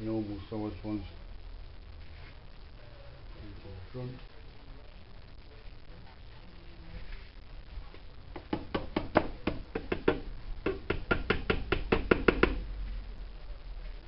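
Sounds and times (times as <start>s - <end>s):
rapid light tapping: 7.9s - 12.6s.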